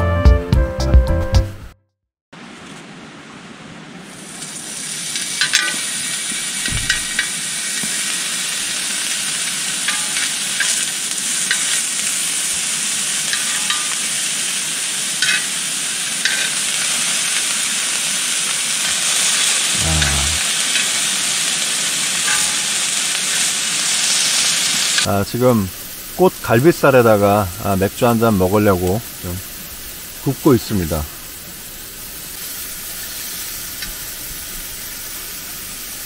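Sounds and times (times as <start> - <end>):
meat sizzling on a grill: 4.0 - 36.0
dull thump: 6.7 - 7.0.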